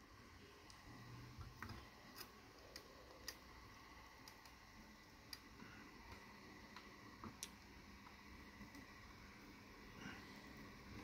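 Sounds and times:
faint sharp soldering ticks: 0:05.2 - 0:05.5.

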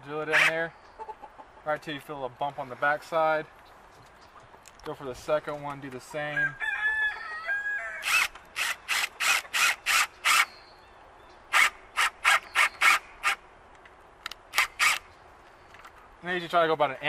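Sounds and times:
cordless drill driving screw: 0:08.0 - 0:10.5, 0:14.5 - 0:15.1.

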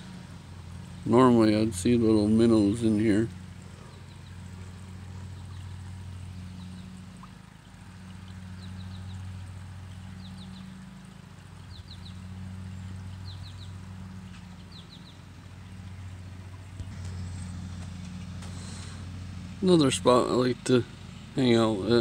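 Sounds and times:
brook trickling: 0:00.0 - 0:22.0
bird chirping: 0:03.6 - 0:07.3, 0:08.1 - 0:10.9, 0:11.6 - 0:17.6.

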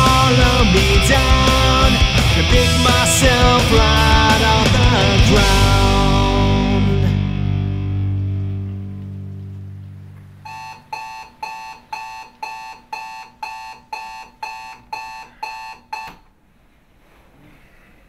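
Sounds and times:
electric guitar chord: 0:00.0 - 0:10.4
alarm clock beeping: 0:10.5 - 0:16.2.

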